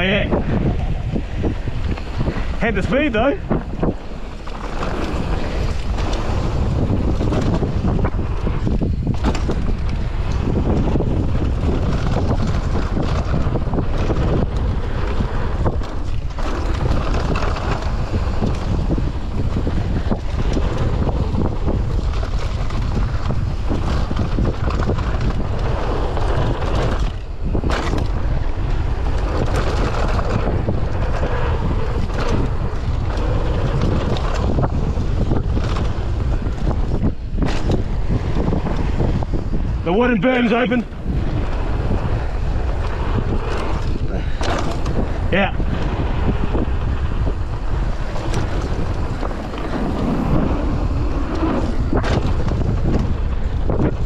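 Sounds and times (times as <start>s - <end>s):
bike knocks and rattles: 0.0s - 54.0s
tyres rolling on dirt trail: 0.0s - 54.0s
wind buffeting microphone: 0.0s - 54.0s.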